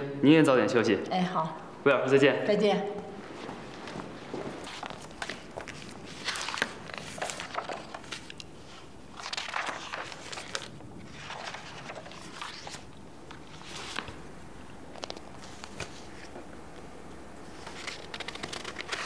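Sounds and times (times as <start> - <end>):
paper rustling: 3.2 - 14.2, 14.9 - 16.4, 17.4 - 19.0.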